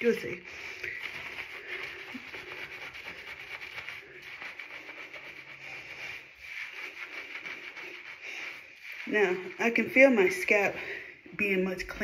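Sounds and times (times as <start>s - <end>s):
fingers scrubbing wet hair: 0.0s - 10.8s.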